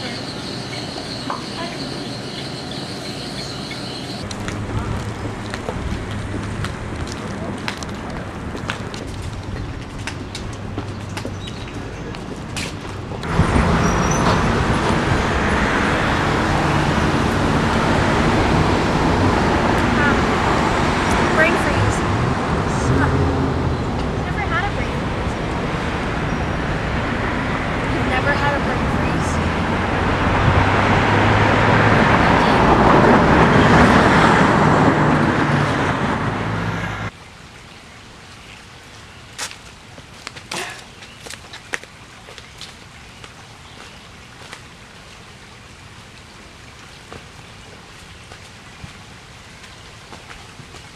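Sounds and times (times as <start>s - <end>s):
passing cars: 0.0s - 37.1s
low traffic hum: 0.0s - 50.9s
vehicle engine running nearby: 1.2s - 37.2s.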